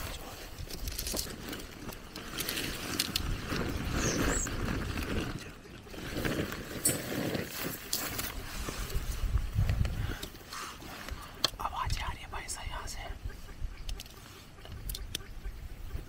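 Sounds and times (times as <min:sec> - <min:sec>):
plastic tarp rustling on grass: 0:00.0 - 0:09.6.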